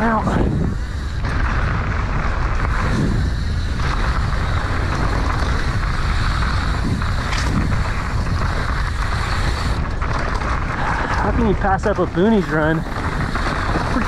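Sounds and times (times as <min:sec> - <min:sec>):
bike tyres rolling on dirt: 0:00.0 - 0:14.0
wind on microphone: 0:00.0 - 0:14.0.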